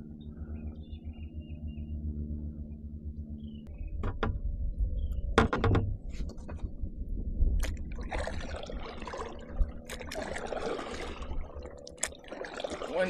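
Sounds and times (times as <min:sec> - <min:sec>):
wind rumble on microphone: 0:00.0 - 0:12.0
knocks against boat: 0:04.0 - 0:04.4, 0:05.4 - 0:06.6
water splashing against kayak: 0:07.6 - 0:13.0.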